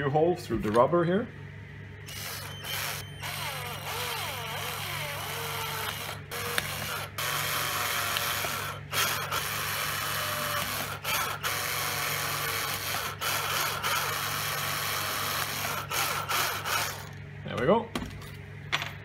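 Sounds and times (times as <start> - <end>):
cordless drill boring: 2.1 - 17.2.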